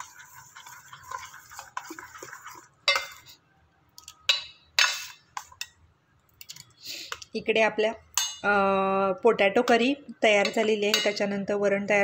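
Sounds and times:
ladle stirring thick pulp: 0.0 - 3.4
ladle clinking against pot: 2.9 - 3.3.

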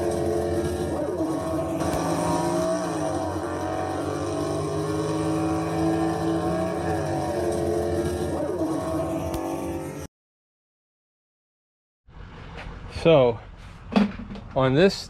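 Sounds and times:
car engines revving: 0.0 - 10.1.

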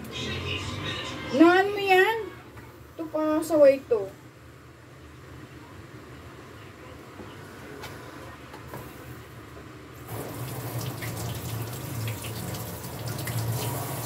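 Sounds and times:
tap water running into sink: 10.1 - 14.0.

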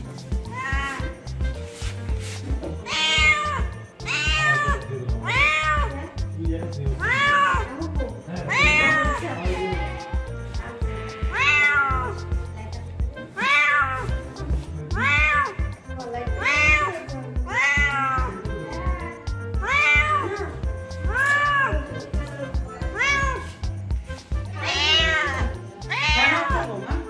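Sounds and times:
background music with beat: 0.0 - 27.0
cat meowing: 0.4 - 1.3, 2.8 - 6.2, 7.0 - 7.8, 8.5 - 10.2, 11.1 - 12.3, 13.3 - 14.2, 14.9 - 22.1, 22.8 - 23.7, 24.5 - 26.9.

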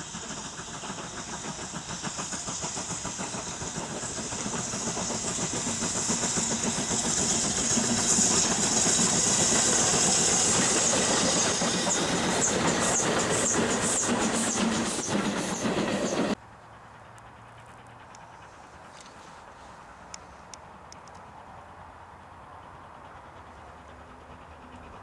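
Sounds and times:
steam locomotive exhaust beats: 0.0 - 16.4
train wheels clicking over rail joints: 0.0 - 16.4.

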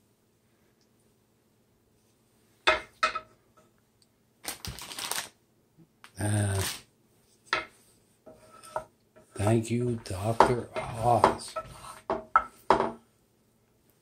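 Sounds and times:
plastic bag crinkling: 4.4 - 5.4.

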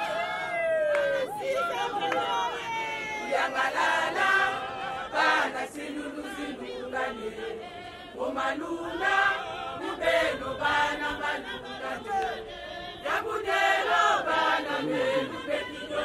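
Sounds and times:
crowd chanting in chorus: 0.0 - 16.0.

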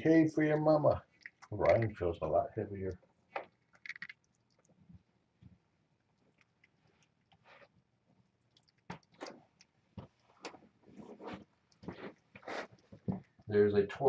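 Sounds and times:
faint rustles and ticks: 0.3 - 14.0.

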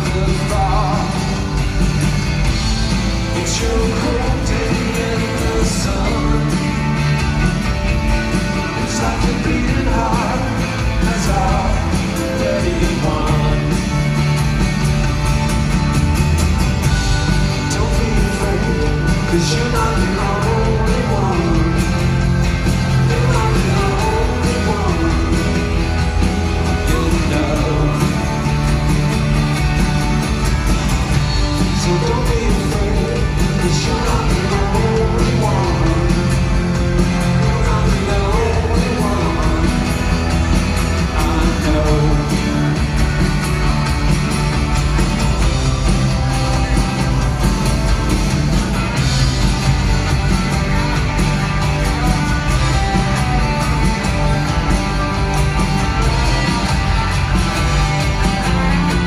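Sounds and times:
person singing: 0.0 - 1.5, 3.2 - 7.0, 8.7 - 14.0, 17.6 - 22.2, 23.0 - 26.0, 26.6 - 28.6, 31.4 - 40.3, 41.0 - 42.9
live rock band playing: 0.0 - 59.0.

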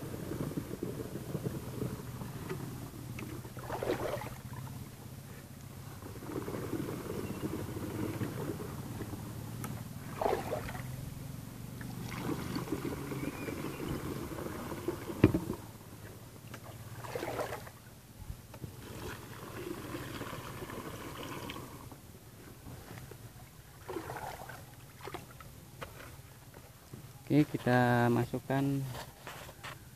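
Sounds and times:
water pouring into tank: 12.0 - 13.2, 18.8 - 21.9, 23.8 - 24.6.

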